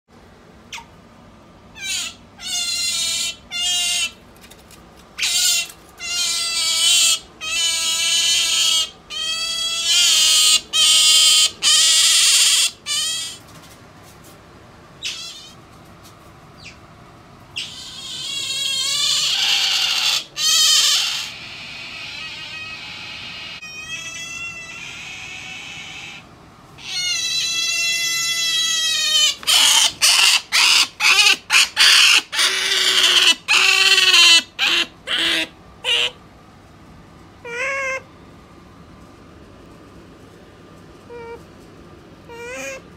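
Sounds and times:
otter squealing: 17.6 - 26.2, 26.8 - 36.2.

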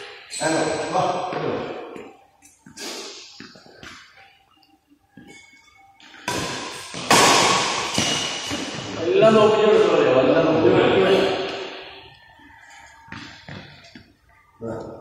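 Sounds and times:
racket hitting shuttlecock: 6.2 - 8.9.

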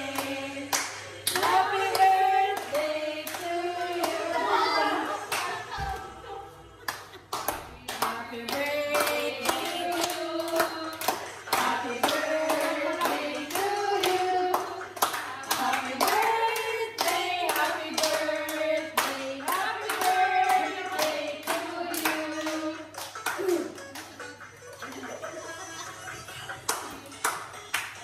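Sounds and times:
hands clapping in steady beat: 0.0 - 4.4, 6.8 - 25.5, 26.2 - 28.0
women singing together: 0.0 - 6.8, 7.5 - 23.0.

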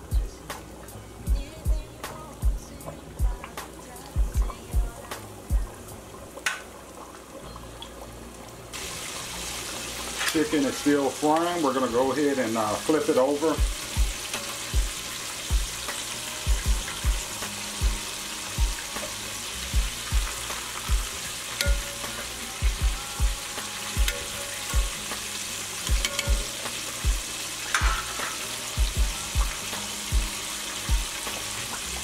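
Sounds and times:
chicken deep-frying in oil: 0.0 - 32.0
metal tongs clicking: 26.0 - 26.5.

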